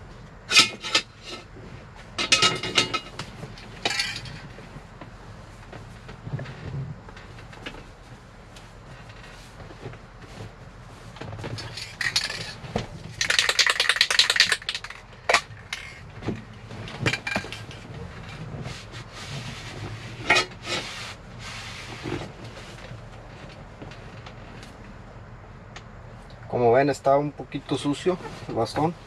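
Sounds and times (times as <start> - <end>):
small hard objects clattering: 11.5 - 16.1.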